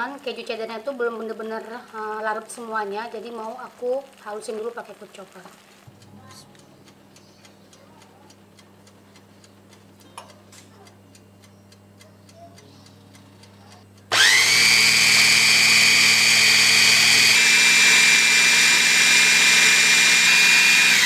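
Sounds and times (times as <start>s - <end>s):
food chopper motor whining: 14.0s - 21.0s.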